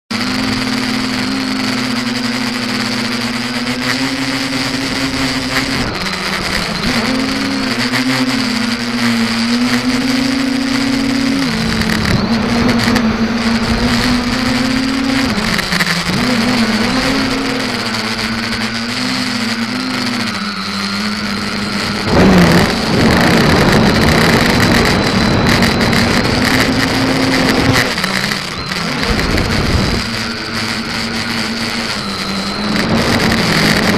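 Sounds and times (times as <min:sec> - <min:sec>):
drone motors humming: 0:00.1 - 0:33.9.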